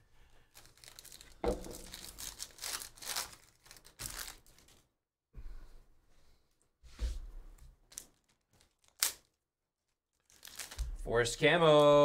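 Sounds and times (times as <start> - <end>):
foil wrapper crinkling: 0.5 - 4.9, 7.9 - 10.9.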